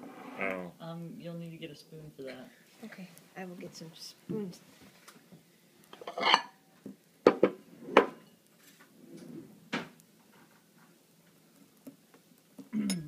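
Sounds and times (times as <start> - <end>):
kitchenware clattering: 5.9 - 6.6, 7.3 - 8.4.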